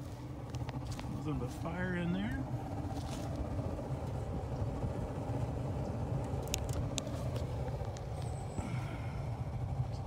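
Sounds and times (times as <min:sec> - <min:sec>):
heater burner chuffing rumble: 0:00.0 - 0:10.0.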